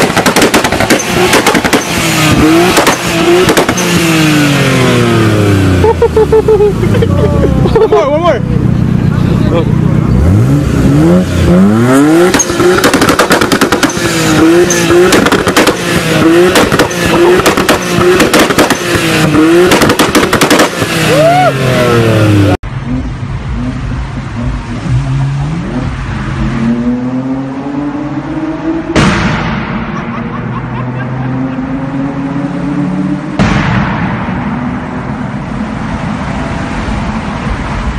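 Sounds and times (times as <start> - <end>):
exhaust crackling and popping: 0.0 - 4.8, 11.7 - 21.3
car engine revving hard: 0.0 - 6.1, 9.6 - 29.0, 30.8 - 33.4
car engine accelerating: 0.0 - 37.9.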